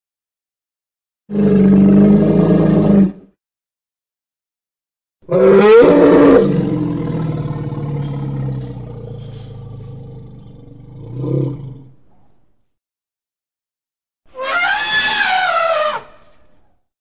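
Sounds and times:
elephant trumpeting call: 5.3 - 6.8, 14.3 - 16.4.

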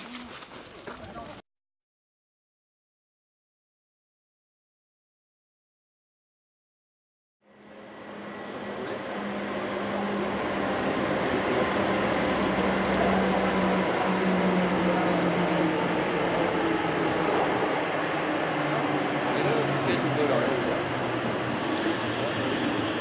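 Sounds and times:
cable car machinery running: 7.5 - 23.0.

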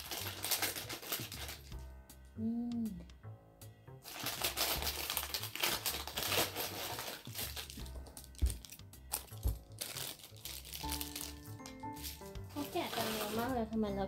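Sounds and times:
packaging crinkling: 0.0 - 1.7, 4.0 - 13.6
background music: 0.0 - 14.0.

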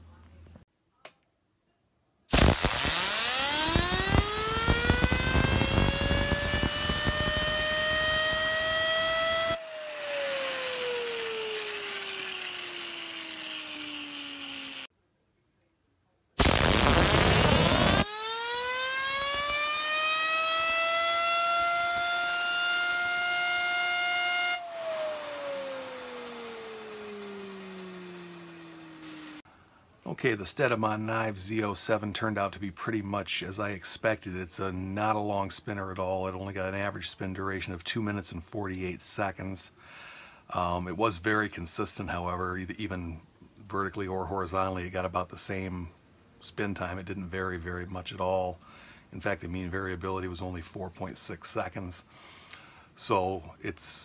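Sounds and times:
compressed air hissing: 2.3 - 9.6
fidget spinner whining: 2.4 - 14.9, 17.2 - 29.4.

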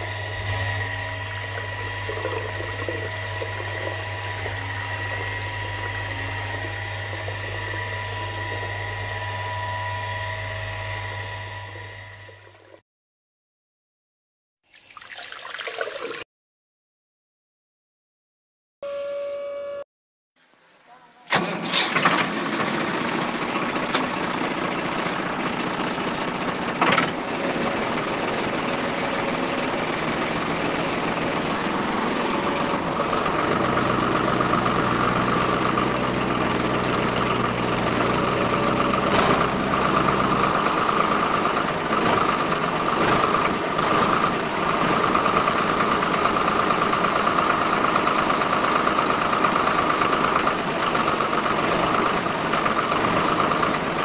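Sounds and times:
small gear motors whining: 0.0 - 12.8, 33.3 - 40.6.

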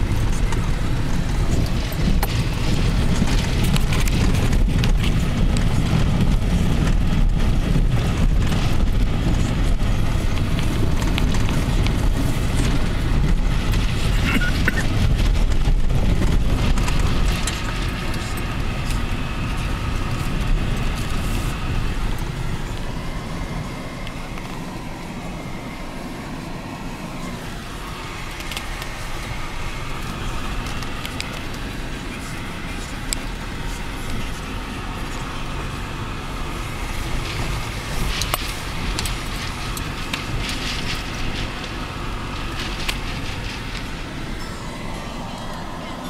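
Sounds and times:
tyres rumbling on gravel: 0.0 - 46.0
small clicks and rattles: 36.8 - 44.4.

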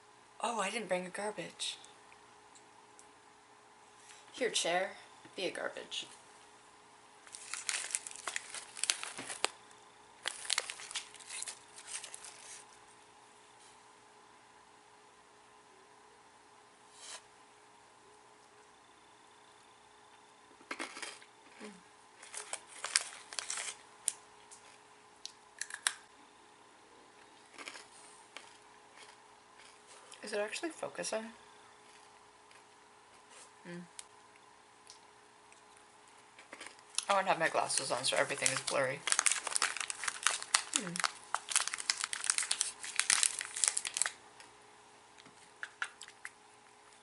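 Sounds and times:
plastic wrapper crinkling: 7.2 - 12.7, 22.2 - 24.7, 36.6 - 44.2
crunchy chewing of peanuts: 7.2 - 12.9, 20.1 - 26.0, 27.1 - 30.2, 31.4 - 33.6, 34.4 - 44.5.

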